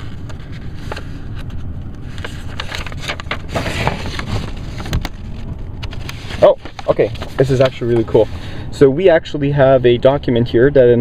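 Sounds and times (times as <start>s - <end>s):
paper rustling: 0.0s - 8.3s.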